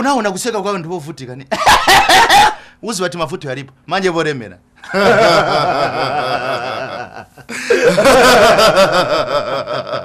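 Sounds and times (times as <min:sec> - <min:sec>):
men laughing hard: 0:01.5 - 0:02.7, 0:04.8 - 0:10.0.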